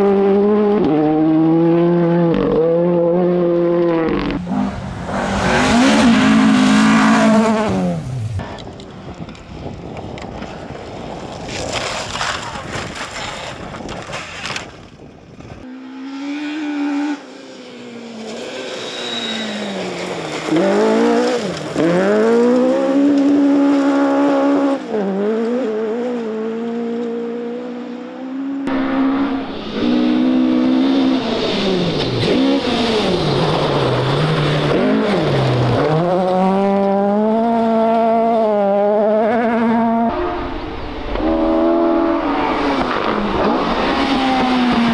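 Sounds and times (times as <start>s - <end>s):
rally car engine revving: 0.0s - 8.7s, 15.7s - 44.9s.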